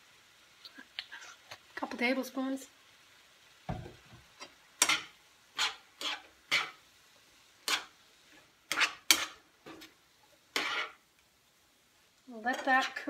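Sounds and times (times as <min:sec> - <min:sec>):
utensil scraping a frying pan: 0:04.4 - 0:06.8, 0:07.6 - 0:11.0, 0:12.4 - 0:13.0.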